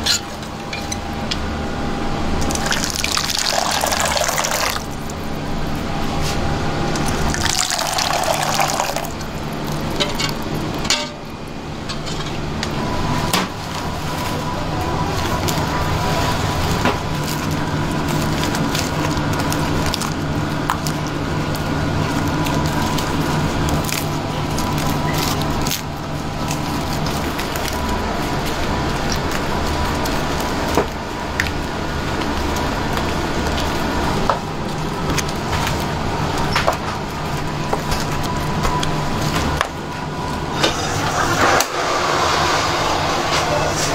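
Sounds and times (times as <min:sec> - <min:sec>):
steady machine hum: 0:00.0 - 0:43.9
wet sloshing and squishing: 0:02.4 - 0:10.8
batter pouring into a bowl: 0:02.5 - 0:05.0, 0:07.2 - 0:09.9.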